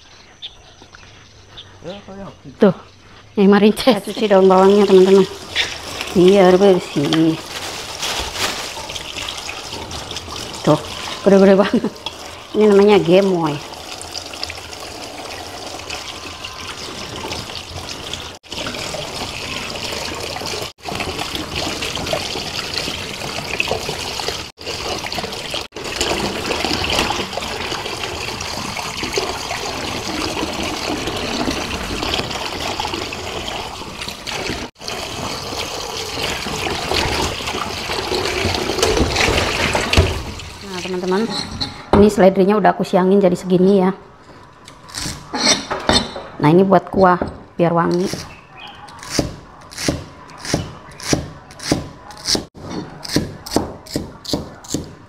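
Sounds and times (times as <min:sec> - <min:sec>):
tap water running into bowl: 0:08.7 - 0:41.2.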